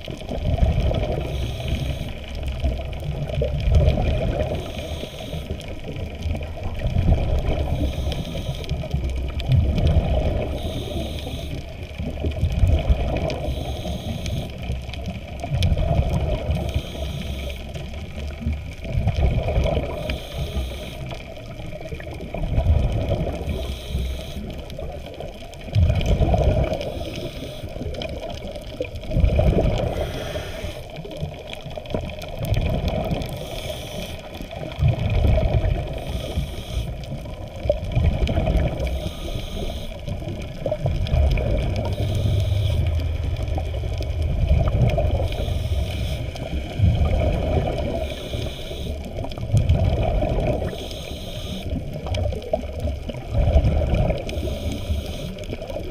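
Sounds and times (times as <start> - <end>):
underwater rush of water: 0.0 - 55.9.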